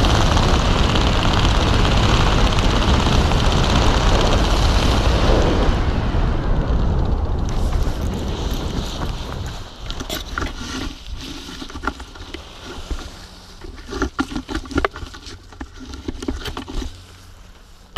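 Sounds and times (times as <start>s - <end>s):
wind rushing on microphone: 0.0s - 13.3s.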